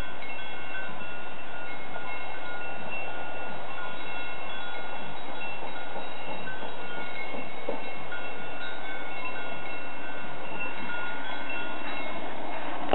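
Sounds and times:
livestock bells tinkling: 0.0s - 12.9s.

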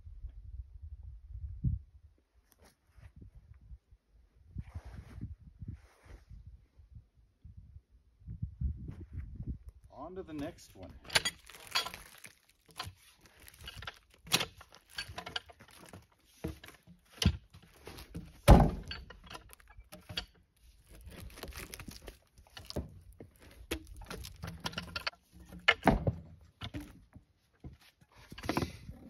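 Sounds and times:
logs knocking and thudding: 10.8s - 28.9s.

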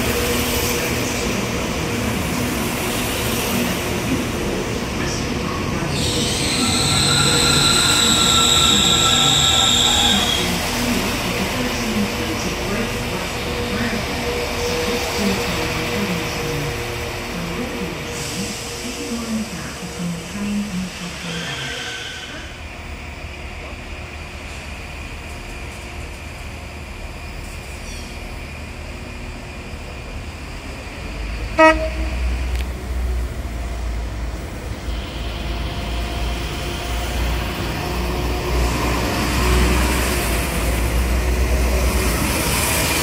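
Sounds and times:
train rumble: 0.0s - 43.0s
train horn toot: 31.6s - 32.5s.

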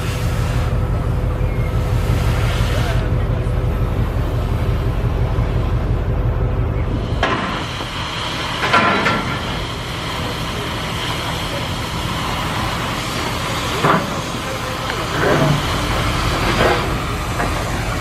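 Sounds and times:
hiss of steel being cut: 0.0s - 0.8s, 7.1s - 18.0s
low rumble: 0.0s - 8.3s.

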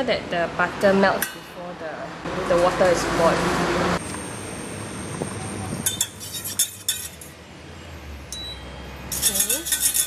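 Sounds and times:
whisk clinking in metal saucepan: 9.1s - 10.0s.

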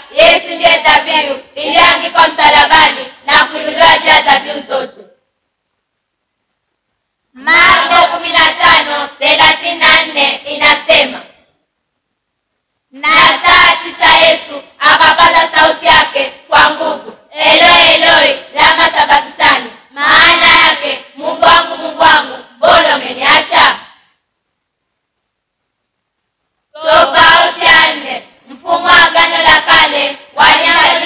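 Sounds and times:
children singing unaccompanied: 0.0s - 5.0s, 7.4s - 11.4s, 13.0s - 24.0s, 26.8s - 31.0s.

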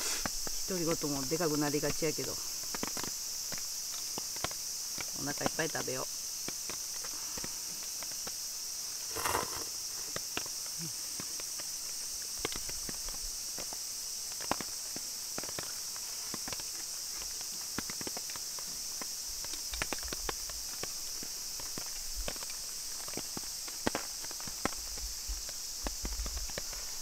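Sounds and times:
insects chirring: 0.0s - 27.0s
noodle slurp: 9.1s - 9.8s.

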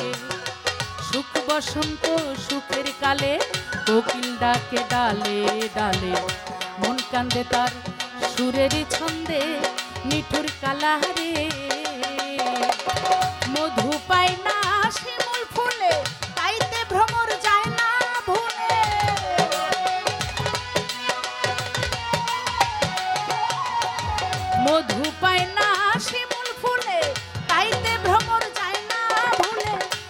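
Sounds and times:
tabla playing fast strokes: 0.0s - 30.0s
woman singing folk song: 1.0s - 12.7s, 13.5s - 19.4s, 24.6s - 30.0s.

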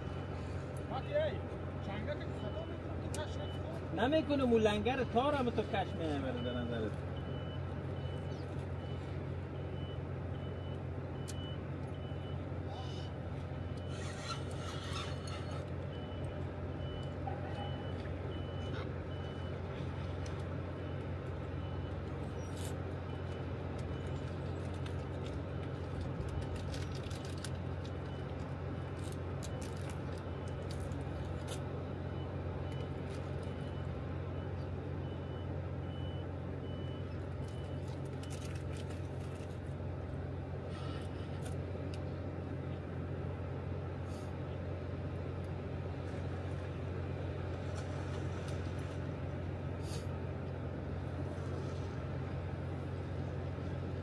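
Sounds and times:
faint high beeping: 1.8s - 14.0s, 15.9s - 19.7s
river water rumbling: 45.0s - 54.0s.

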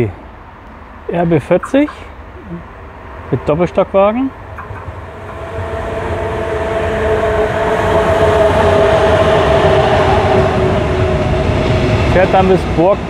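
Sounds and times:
electric locomotive whine: 1.7s - 13.0s
train slowing to a stop: 4.4s - 13.0s.

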